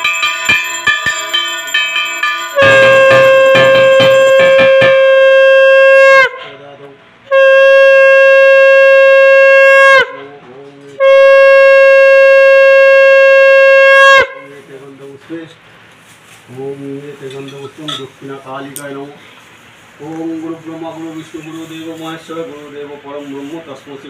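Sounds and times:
hand bell ringing: 0:00.0 - 0:05.2
conch shell blasts: 0:00.0 - 0:06.7, 0:07.3 - 0:10.3, 0:11.0 - 0:14.6.

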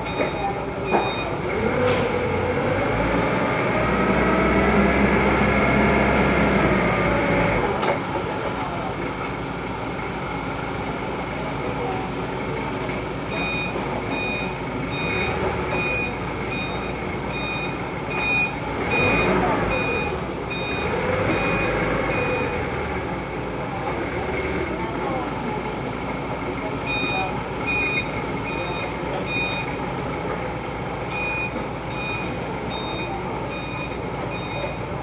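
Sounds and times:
reversing alarm beeps: 0:00.0 - 0:01.4, 0:13.3 - 0:22.7, 0:26.8 - 0:29.8, 0:31.1 - 0:34.9
forklift engine running: 0:00.0 - 0:35.0.

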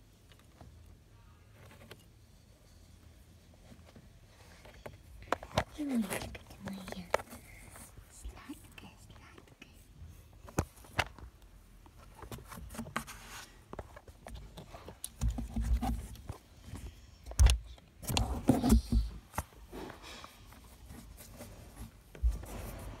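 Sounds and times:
rubbing and bumping on microphone: 0:10.4 - 0:23.0.

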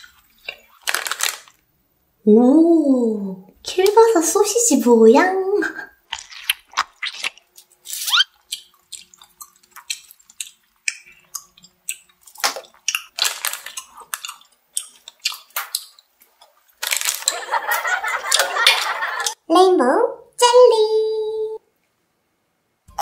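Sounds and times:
plastic pouch crackling: 0:00.7 - 0:01.6, 0:12.4 - 0:14.2, 0:16.8 - 0:17.3
wet chewing mouth clicks: 0:06.1 - 0:16.6.

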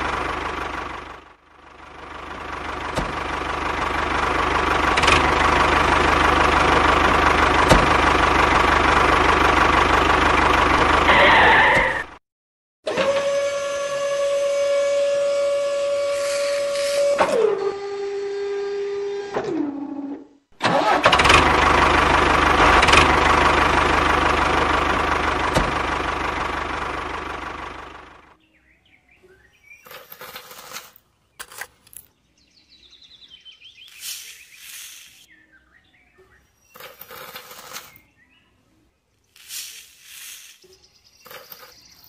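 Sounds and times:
engine-like running rumble: 0:00.0 - 0:12.2, 0:20.6 - 0:30.6
metal bucket scraping sand: 0:15.9 - 0:17.2, 0:29.9 - 0:31.6, 0:33.8 - 0:35.3, 0:36.8 - 0:38.0, 0:39.3 - 0:41.9.

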